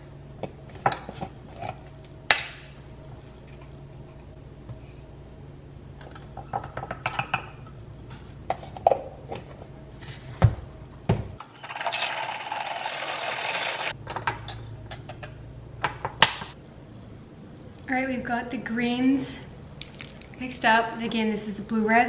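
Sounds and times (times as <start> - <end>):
milk frother whirring: 11.4 - 14.0.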